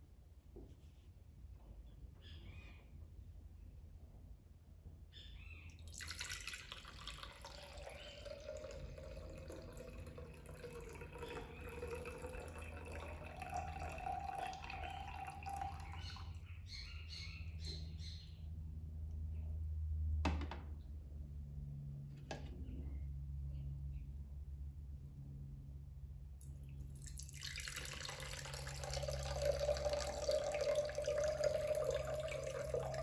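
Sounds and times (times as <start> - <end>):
water pouring between pitchers: 5.8 - 16.4, 26.8 - 33.0
water dripping: 5.8 - 16.5, 26.4 - 33.0.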